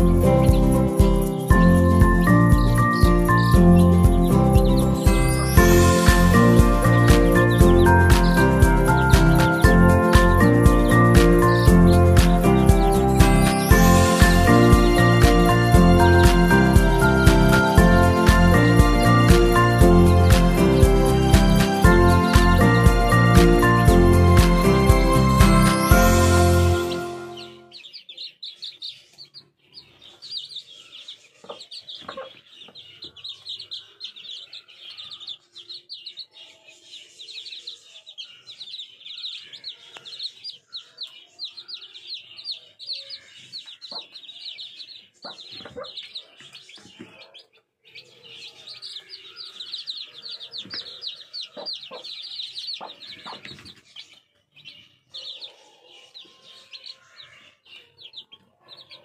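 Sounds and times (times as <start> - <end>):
chicks peeping: 0.0 - 59.0
hen clucking: 27.7 - 35.9, 39.5 - 54.1.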